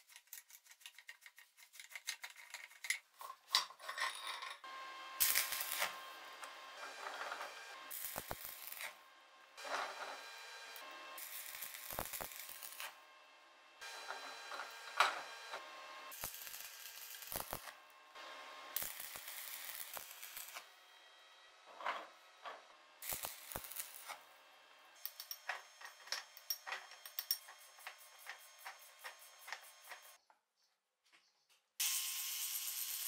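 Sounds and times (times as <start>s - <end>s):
arc welding crackling hiss: 5.2s - 9.0s, 9.6s - 13.0s, 13.8s - 20.7s, 23.0s - 24.3s, 25.0s - 30.2s, 31.8s - 33.0s.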